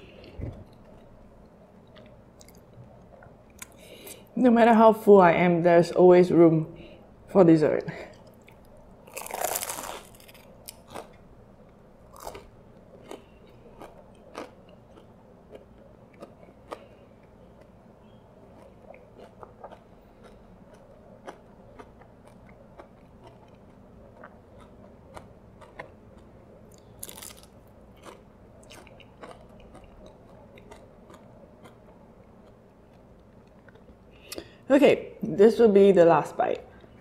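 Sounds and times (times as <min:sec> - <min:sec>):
close-up chewing: 0:08.1 - 0:11.2, 0:12.1 - 0:34.4
pastry crust crunching: 0:08.3 - 0:34.1.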